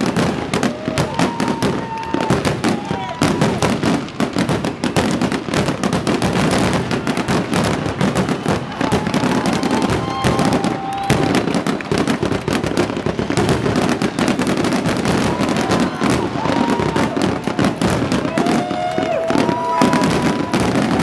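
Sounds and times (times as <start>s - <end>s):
fireworks crackling and popping: 0.0s - 21.0s.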